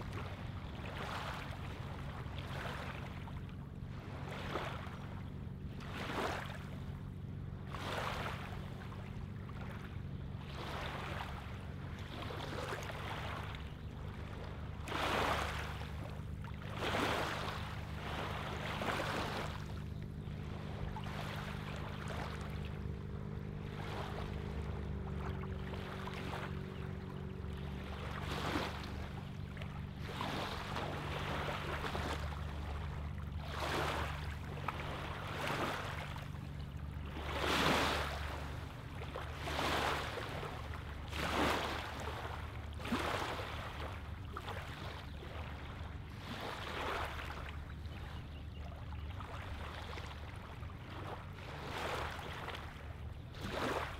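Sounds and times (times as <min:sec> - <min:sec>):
steady low hum: 0:00.0 - 0:53.9
water lapping on pebbly shore: 0:14.6 - 0:26.8, 0:29.9 - 0:36.4, 0:37.0 - 0:47.5, 0:49.2 - 0:53.9.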